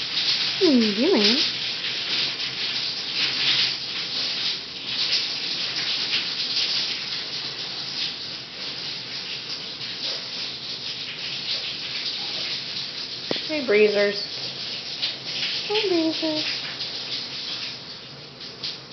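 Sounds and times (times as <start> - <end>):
shower running: 0.0 - 18.9.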